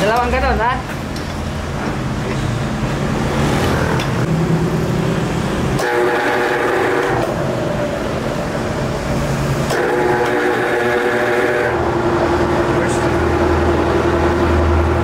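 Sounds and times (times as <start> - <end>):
machinery running: 0.0 - 15.0
multi-tone whine: 5.8 - 15.0.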